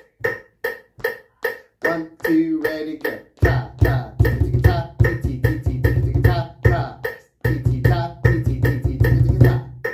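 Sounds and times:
metronome clicking: 0.0 - 3.4
hand drumming fast rhythm: 0.0 - 9.9
person chanting rhythm syllables: 0.0 - 9.9.

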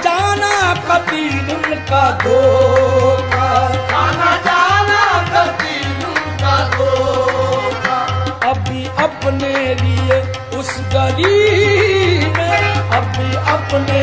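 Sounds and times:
tabla rhythm: 0.0 - 14.0.

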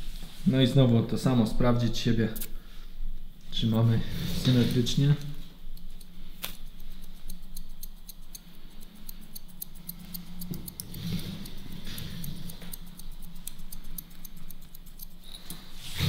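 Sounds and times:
scissors snipping: 5.7 - 15.8.

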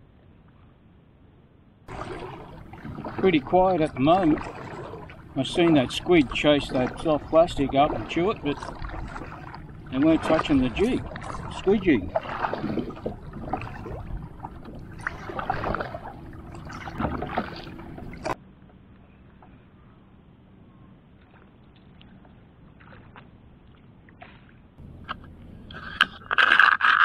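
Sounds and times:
kayak paddle splashing: 1.9 - 18.4, 21.2 - 27.0
water washing along hull: 1.9 - 18.4
faint water lapping: 1.9 - 27.0.

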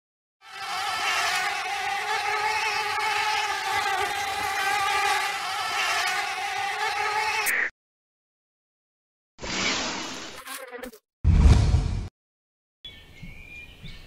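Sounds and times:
swarm of insects buzzing: 0.4 - 7.7.

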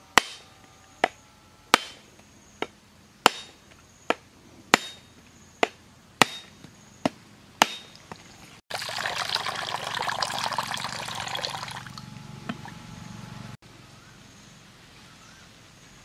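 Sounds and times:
heavy knife striking coconut shell: 0.2 - 8.0
coconut water pouring into dipper: 8.7 - 12.7.

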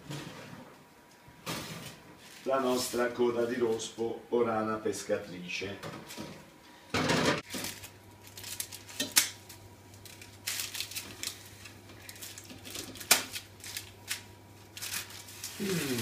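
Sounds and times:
baking paper crinkling: 1.8 - 4.0, 7.4 - 16.0.

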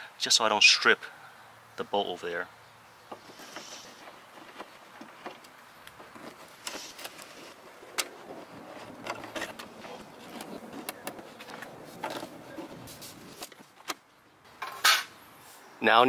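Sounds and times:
metal plate being handled: 14.6 - 15.1.

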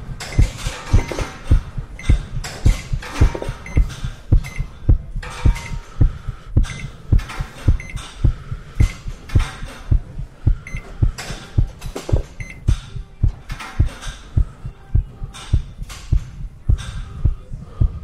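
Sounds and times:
heartbeat thumps: 0.0 - 18.0.

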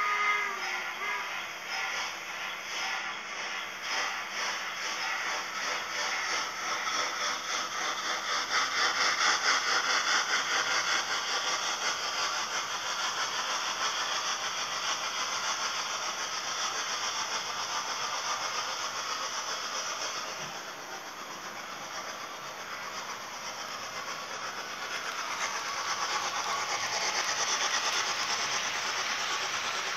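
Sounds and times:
model steam train running: 0.0 - 29.9.

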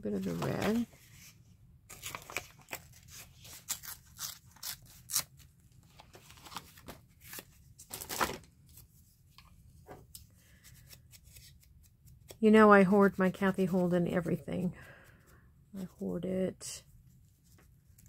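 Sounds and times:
paper rustling: 0.2 - 1.3, 1.9 - 5.2.

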